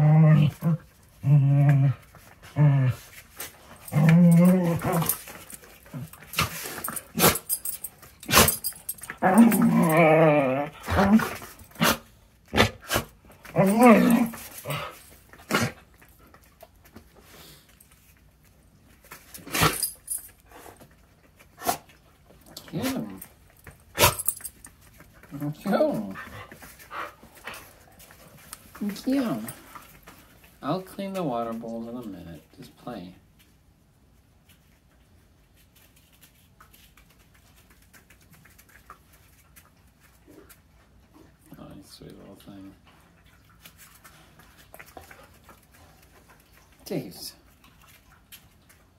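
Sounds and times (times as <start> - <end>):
dog eating from metal bowl: 2.0 - 12.4, 13.1 - 32.5, 36.3 - 48.9
dogs growling: 3.7 - 15.9.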